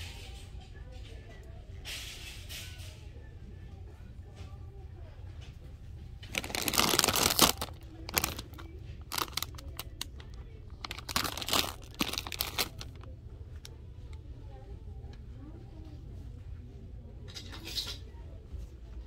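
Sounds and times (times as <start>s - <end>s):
plastic chip bag crinkling: 6.2s - 13.1s.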